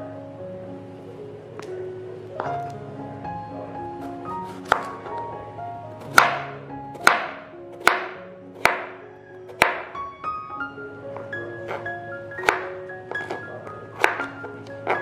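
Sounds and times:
background piano music: 0.0 - 15.0
knife chopping on cutting board: 4.0 - 5.0, 6.0 - 9.9, 11.6 - 15.0.

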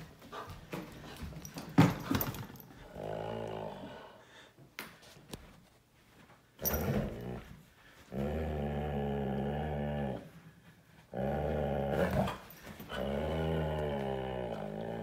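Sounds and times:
dog growling: 2.8 - 4.2, 8.1 - 10.3, 11.1 - 15.0.

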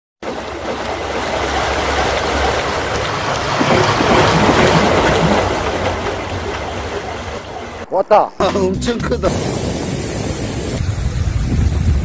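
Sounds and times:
seaside wind and surf: 0.2 - 8.6, 9.2 - 12.0
wind rumbling on microphone: 9.3 - 12.0.

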